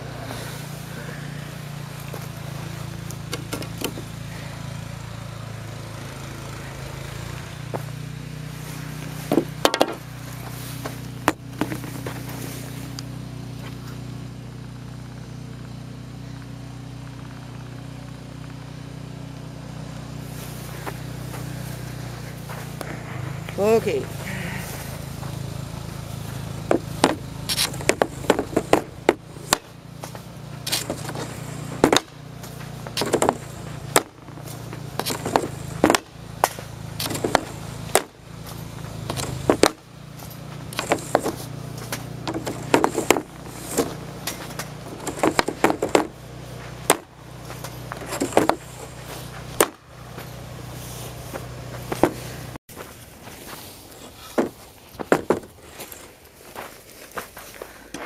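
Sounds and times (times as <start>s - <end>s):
low hum: 0.0s - 58.0s
pucks scraping across ice: 8.5s - 13.0s, 20.2s - 56.2s
hockey stick cracking pucks: 9.3s - 10.0s, 26.6s - 38.1s, 39.0s - 50.3s, 51.4s - 52.3s.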